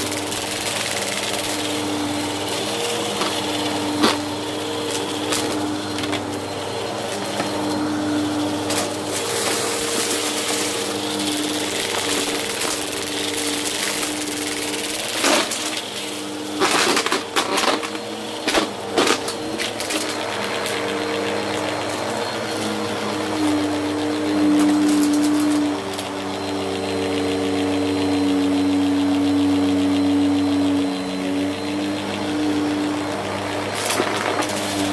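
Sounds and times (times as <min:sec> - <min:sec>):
debris crunching in vacuum: 0:00.0 - 0:22.2, 0:32.3 - 0:34.9
vacuum cleaner running on carpet: 0:00.0 - 0:34.9.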